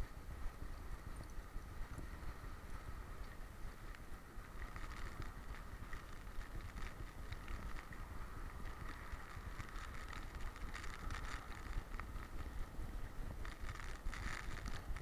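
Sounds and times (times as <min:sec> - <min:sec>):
wind buffeting microphone: 0:00.0 - 0:15.0
dog gear clicking and rattling: 0:13.4 - 0:14.9.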